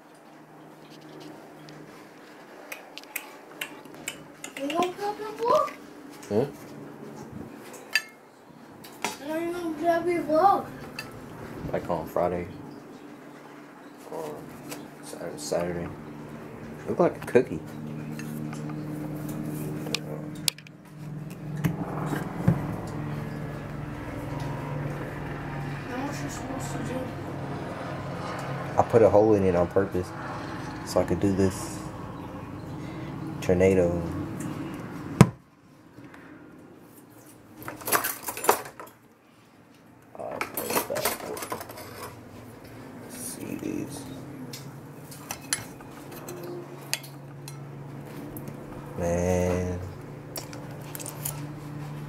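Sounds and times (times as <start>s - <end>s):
steady low hum: 3.7s - 37.4s.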